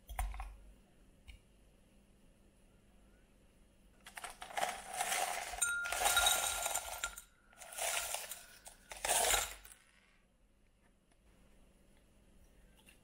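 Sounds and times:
ice cubes clinking into glass: 4.1 - 9.8.

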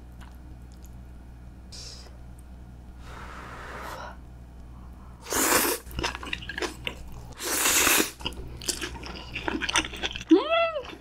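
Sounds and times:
slurping noodles: 5.2 - 6.6, 7.4 - 8.3.

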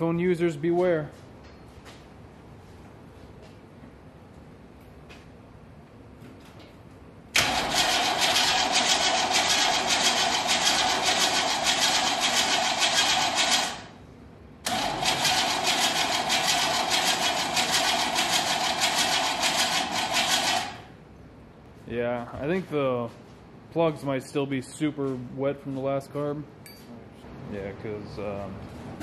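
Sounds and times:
engine starter cranking: 7.4 - 13.9, 14.6 - 20.9.

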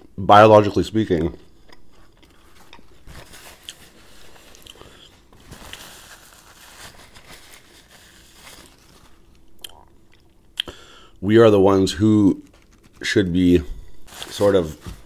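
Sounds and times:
paper napkin crinkling: 1.9 - 9.5, 12.3 - 15.0
mouth clicks: 9.6 - 10.8.

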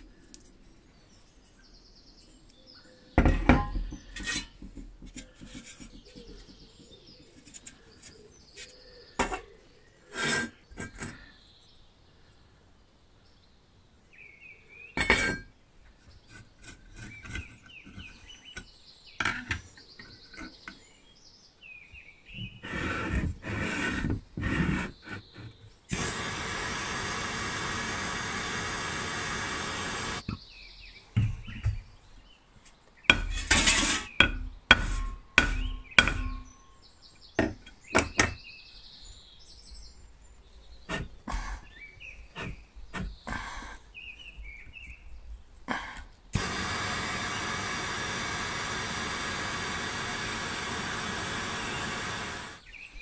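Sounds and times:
blowtorch flame hissing: 25.9 - 30.2, 46.4 - 52.6.

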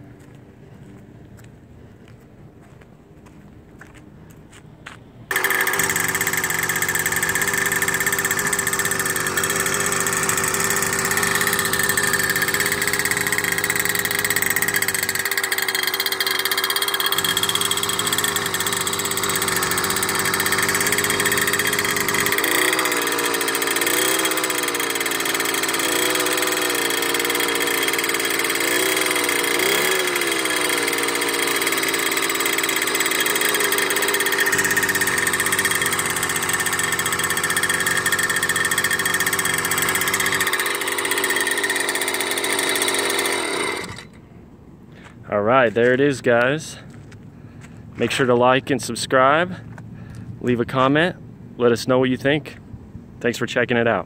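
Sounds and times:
two-stroke engine idling and revving: 5.3 - 44.4.

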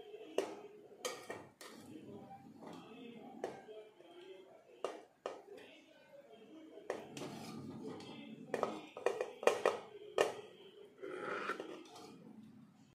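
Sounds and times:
metal spoon scraping a pot: 1.0 - 3.6, 6.9 - 10.4, 11.0 - 12.3.

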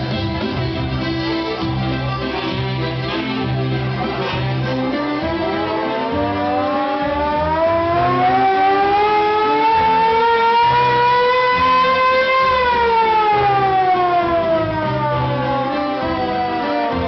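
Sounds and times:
dance music bass: 0.0 - 17.0
siren wailing: 4.8 - 17.0.

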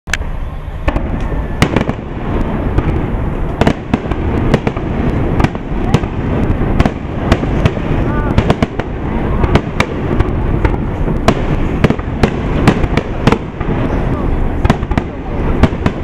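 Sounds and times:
fireworks booming and cracking: 0.2 - 16.0.

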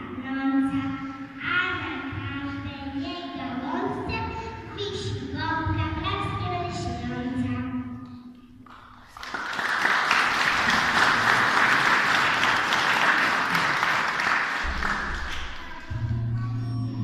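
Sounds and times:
audience clapping: 8.6 - 16.0.

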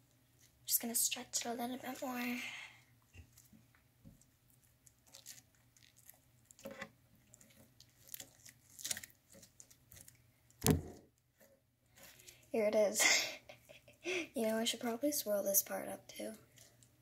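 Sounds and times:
slime sticky crackles: 0.4 - 2.4, 4.2 - 10.6.

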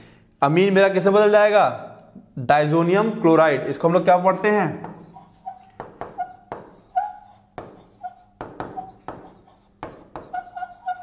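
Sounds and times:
stylus tapping on screen: 4.8 - 11.0
stylus squeaks: 5.0 - 11.0.

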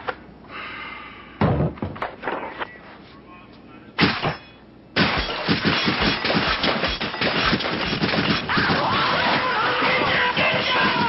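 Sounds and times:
rapid clatter of bangs and crashes: 4.0 - 11.0.

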